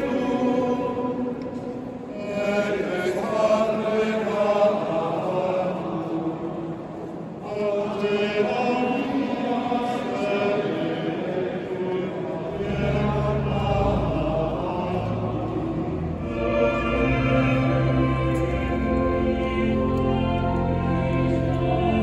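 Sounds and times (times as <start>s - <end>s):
voices singing chant: 0.0s - 1.5s, 2.1s - 22.0s
low sustained notes: 12.4s - 22.0s.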